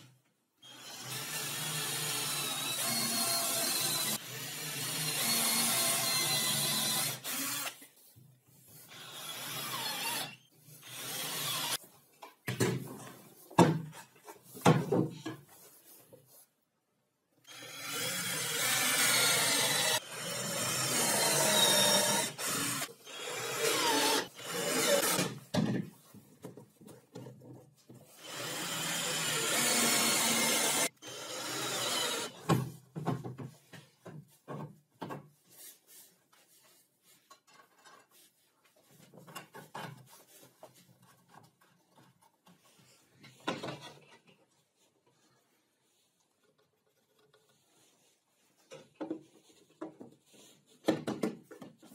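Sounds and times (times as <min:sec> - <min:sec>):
cordless drill boring into wood: 0:00.6 - 0:07.8, 0:08.9 - 0:11.8, 0:17.5 - 0:25.4, 0:28.2 - 0:32.4
knocks and clicks of handling wood: 0:12.1 - 0:15.6, 0:25.2 - 0:28.1, 0:32.4 - 0:35.4, 0:38.9 - 0:44.5, 0:48.6 - 0:51.9.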